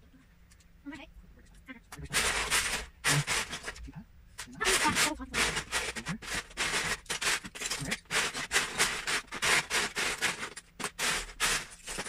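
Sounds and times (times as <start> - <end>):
plastic bricks rattling in a tub: 2.0 - 3.8, 4.6 - 12.0.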